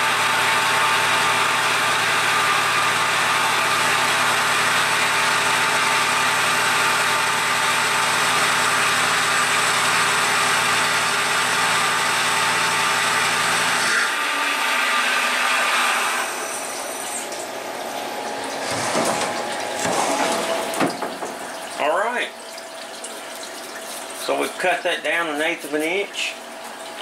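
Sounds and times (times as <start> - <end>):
milling machine whir: 0.0 - 21.8
coolant splashing: 16.2 - 27.0.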